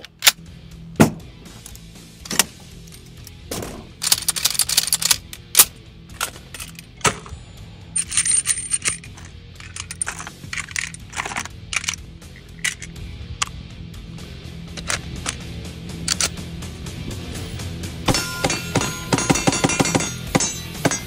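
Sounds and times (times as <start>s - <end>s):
rifle and cartridges clicking: 0.0s - 0.5s, 1.6s - 3.4s, 4.0s - 7.4s, 8.0s - 13.6s, 14.7s - 16.4s
metallic rattle: 1.6s - 7.3s, 8.0s - 13.0s.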